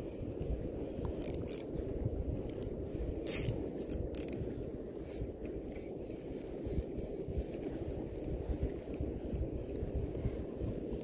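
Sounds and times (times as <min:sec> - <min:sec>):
fishing reel gears whirring: 0:01.2 - 0:01.8, 0:02.4 - 0:04.5.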